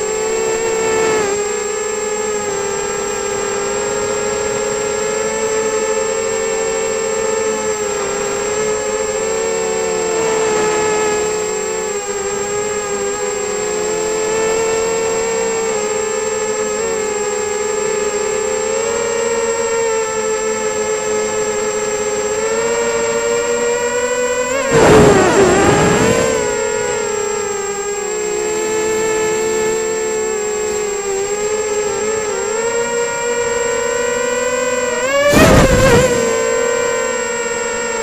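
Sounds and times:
quadcopter motors whining: 0:00.0 - 0:38.0.

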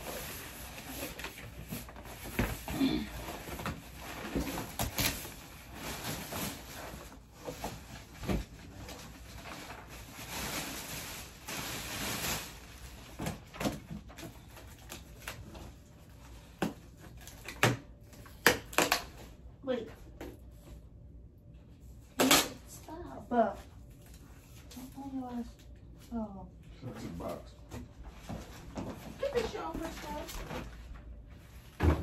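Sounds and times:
packaging rustling and crinkling: 0:00.0 - 0:19.3.

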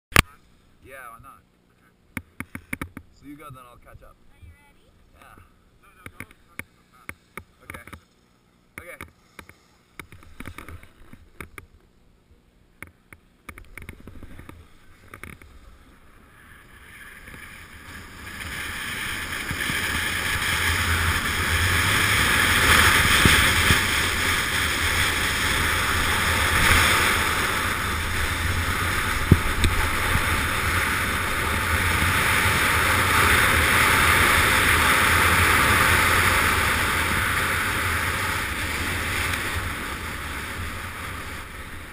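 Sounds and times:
skis clicking and scraping on snow: 0:13.6 - 0:41.9
wind rushing over microphone: 0:16.2 - 0:41.9.

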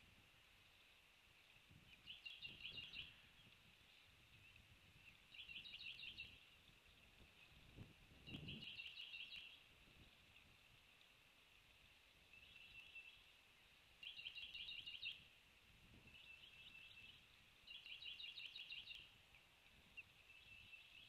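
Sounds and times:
bird chirping trill: 0:14.0 - 0:15.2, 0:16.0 - 0:19.1.

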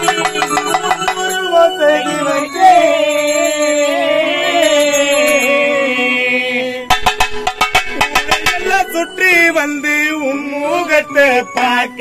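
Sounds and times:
sharp drum strokes: 0:06.9 - 0:09.0.

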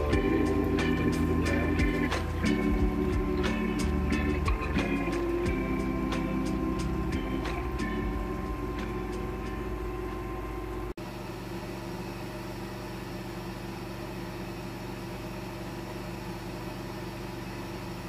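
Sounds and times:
drone propellers humming: 0:00.0 - 0:10.9.

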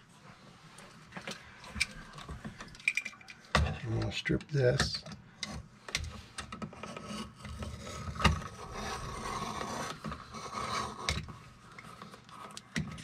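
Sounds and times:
knife scraping plastic cable jacket: 0:06.6 - 0:13.0.

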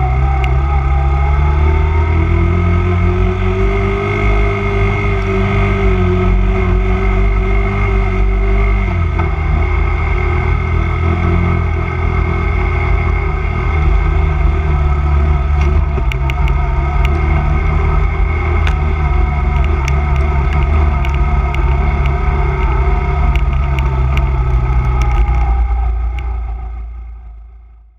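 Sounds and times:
quad engine running: 0:00.0 - 0:27.4
sharp ticks: 0:19.5 - 0:25.5.

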